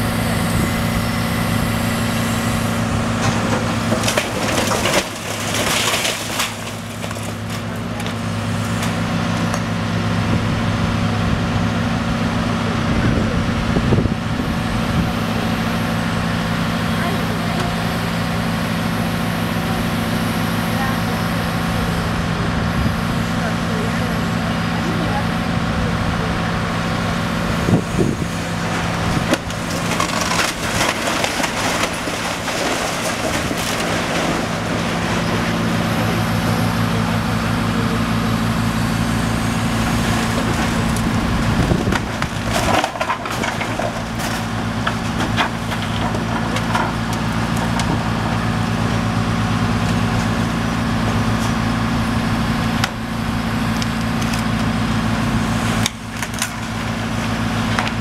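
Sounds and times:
diesel excavator engine running: 0.0s - 58.0s
brick and timber crunching: 2.8s - 10.0s, 27.4s - 58.0s
falling debris knocks: 3.1s - 9.7s, 28.3s - 36.4s, 40.1s - 48.7s.

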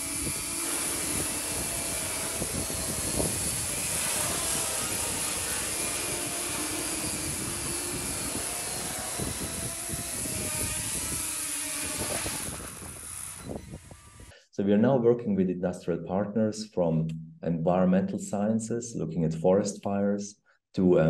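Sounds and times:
drone rotors whirring: 0.0s - 14.3s.

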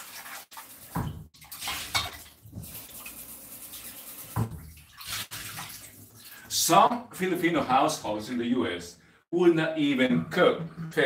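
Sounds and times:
running tap water: 0.0s - 6.6s.

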